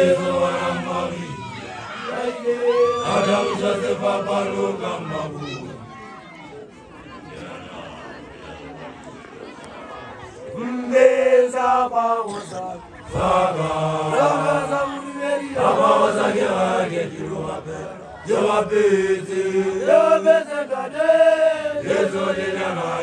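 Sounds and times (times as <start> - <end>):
group chanting together: 0.0 - 5.9, 10.5 - 23.0.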